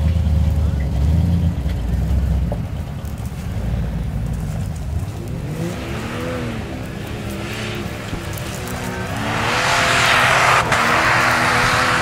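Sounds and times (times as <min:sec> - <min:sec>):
engine revving: 0:03.5 - 0:12.0.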